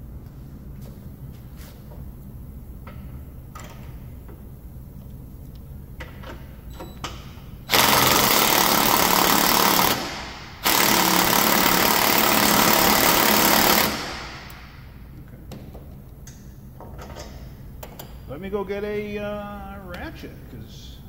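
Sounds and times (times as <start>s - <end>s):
impact gun hammering: 7.7s - 14.8s.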